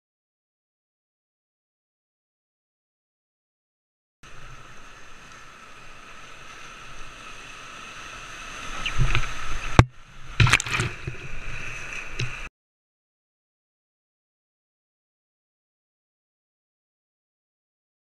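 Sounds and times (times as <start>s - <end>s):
water splashing against boat: 4.3s - 12.5s.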